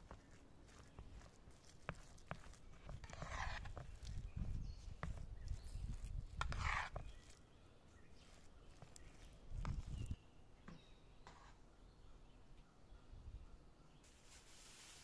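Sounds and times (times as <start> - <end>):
spoon scraping metal bowl: 0.0 - 7.4
spoon squelching salad: 0.0 - 10.2.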